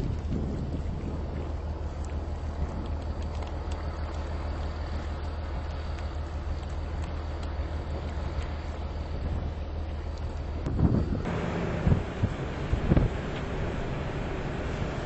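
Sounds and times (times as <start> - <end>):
vehicle engine rumbling: 11.1 - 15.0.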